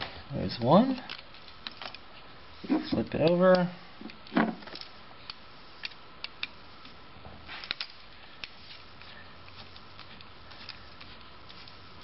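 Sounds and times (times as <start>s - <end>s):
screwdriver clicking and scraping metal: 2.7s - 7.0s, 7.6s - 11.8s.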